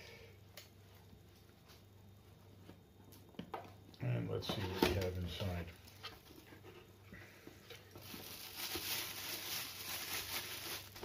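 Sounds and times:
plastic rustling hiss: 7.3s - 11.0s
cardboard packaging handling: 8.0s - 11.0s.

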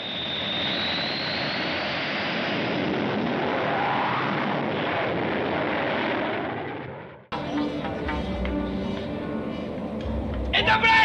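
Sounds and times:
jet engine roaring: 0.0s - 10.5s.

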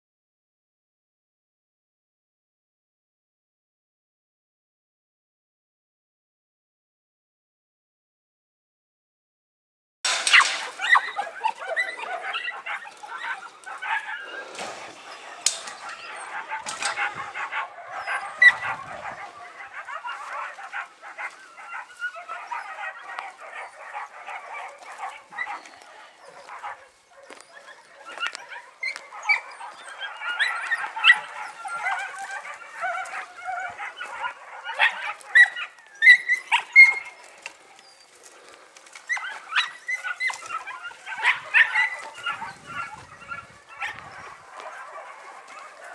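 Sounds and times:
puppies barking: 10.1s - 45.9s.

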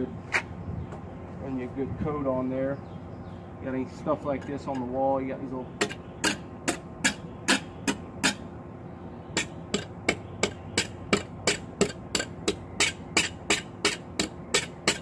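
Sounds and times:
trowel slapping mortar: 9.4s - 15.0s.

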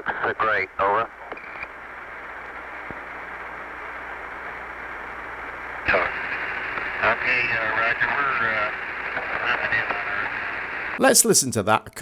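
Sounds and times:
faint voice over radio: 0.0s - 1.1s, 5.9s - 6.3s, 7.0s - 10.5s
radio static hiss: 0.0s - 11.5s.

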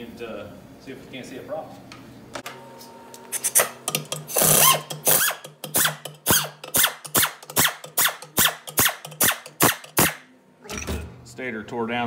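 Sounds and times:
pneumatic air ratchet whirring: 3.3s - 10.2s.

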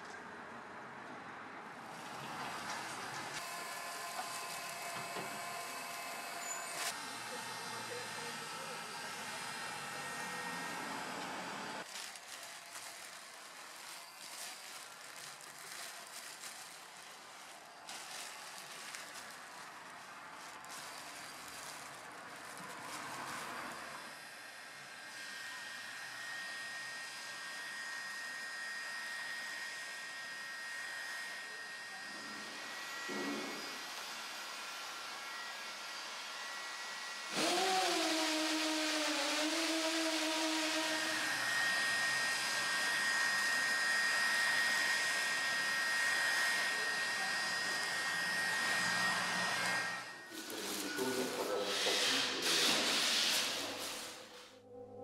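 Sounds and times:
heat gun fan whine: 2.0s - 15.0s, 23.8s - 54.5s.

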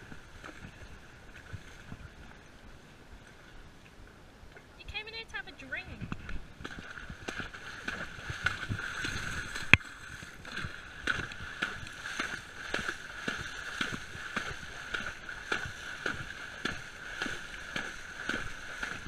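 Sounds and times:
pony splashing in muddy water: 0.0s - 3.6s, 6.2s - 19.0s.

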